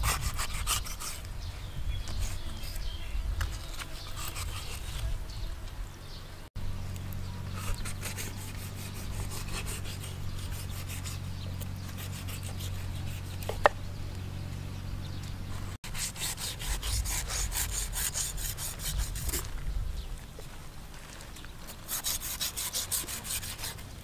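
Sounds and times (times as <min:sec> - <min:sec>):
knife scraping shark skin: 0:03.6 - 0:05.0, 0:21.9 - 0:23.8
low hum: 0:05.3 - 0:18.5.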